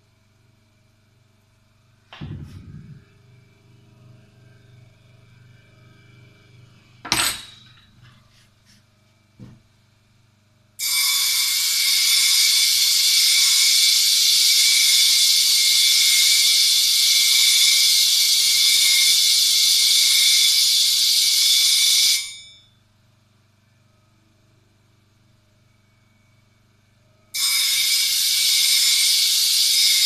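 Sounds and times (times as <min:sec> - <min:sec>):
faint low hum: 0:00.0 - 0:10.3
blade grinding on sharpener: 0:10.8 - 0:20.6, 0:27.4 - 0:30.0.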